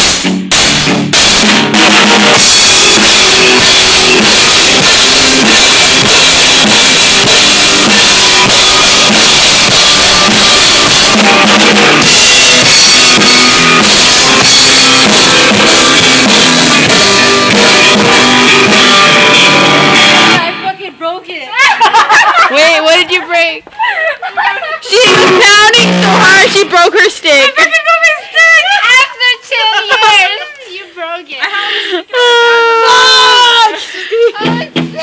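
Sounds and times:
rock drum kit beat: 0:00.0 - 0:20.7, 0:24.9 - 0:27.4, 0:34.4 - 0:35.0.

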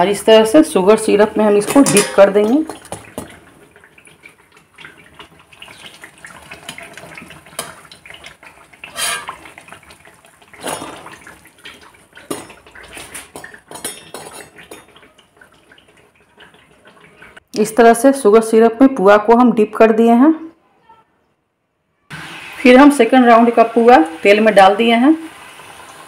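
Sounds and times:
oil and syrup sounds: 0:00.0 - 0:17.8
metal skimmer clinking and scraping: 0:01.6 - 0:02.8, 0:08.8 - 0:09.5.

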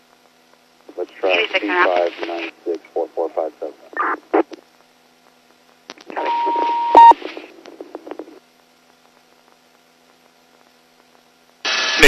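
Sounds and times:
radio static with steady tone: 0:00.0 - 0:12.0
short loud radio beep: 0:06.2 - 0:07.2.

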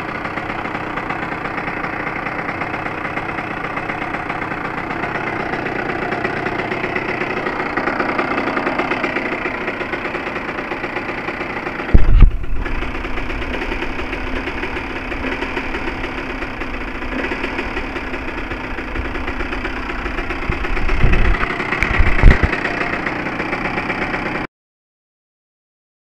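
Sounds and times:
two-stroke engine idling: 0:00.0 - 0:24.5
low thumps: 0:11.9 - 0:13.2, 0:20.2 - 0:22.5.

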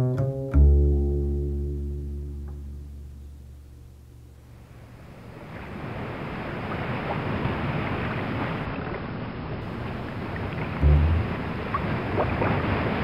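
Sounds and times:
low bowed string note: 0:00.0 - 0:04.4, 0:10.8 - 0:11.8
ocean surf: 0:04.5 - 0:13.0.

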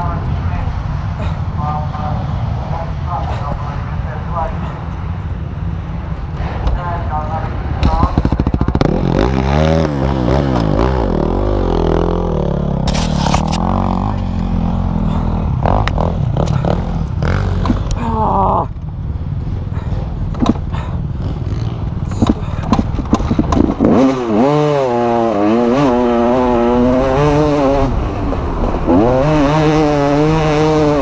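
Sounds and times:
motocross bike engines revving: 0:00.0 - 0:31.0
clatters and knocks from dirt track: 0:22.2 - 0:24.1.

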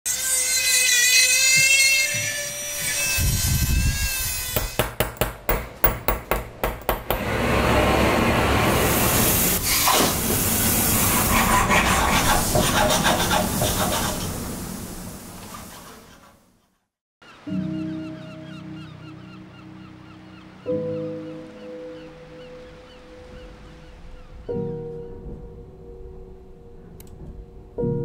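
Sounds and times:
hand tool scraping: 0:00.1 - 0:14.3
punch tapping on metal: 0:04.6 - 0:07.3.

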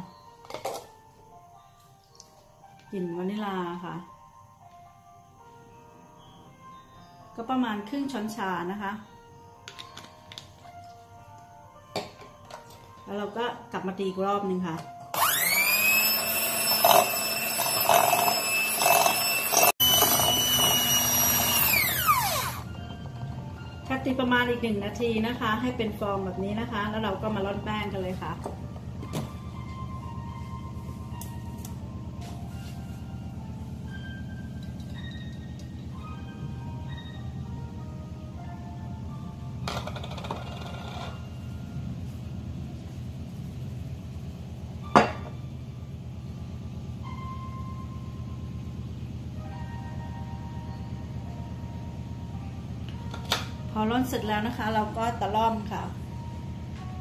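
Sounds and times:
electric hand mixer whining: 0:15.1 - 0:22.8.

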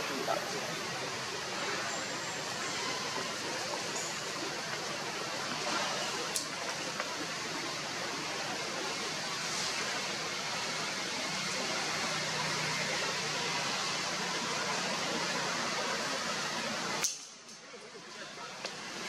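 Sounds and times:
hissing outdoor background noise: 0:00.0 - 0:19.0
sharp click: 0:17.0 - 0:17.6.

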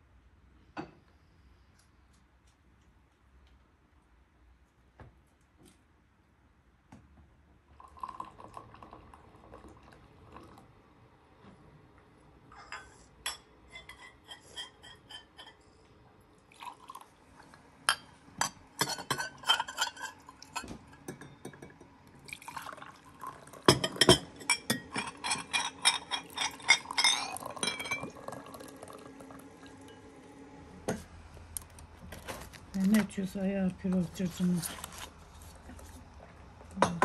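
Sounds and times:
tea pouring into glass: 0:07.7 - 0:10.7, 0:16.4 - 0:17.6, 0:22.2 - 0:30.2
glasses clinking against saucers: 0:23.7 - 0:28.6.

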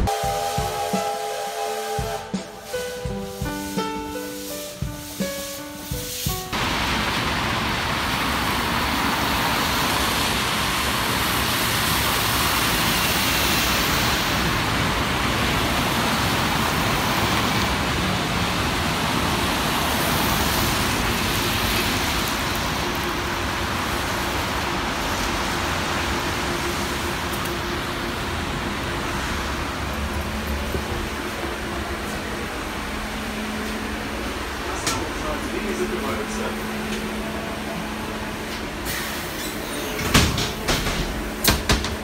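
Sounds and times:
tram passing: 0:00.0 - 0:42.0
tyre hiss on wet road: 0:01.8 - 0:30.5, 0:38.6 - 0:39.9.

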